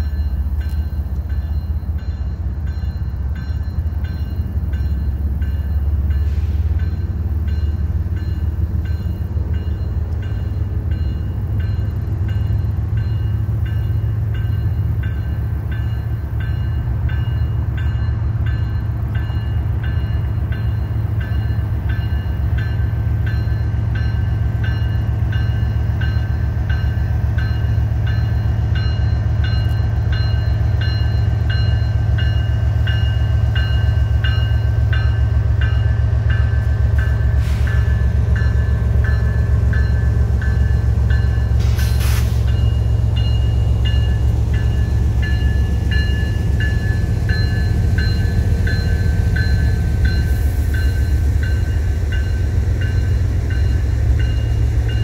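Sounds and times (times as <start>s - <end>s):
locomotive engine rumble: 0.0s - 55.0s.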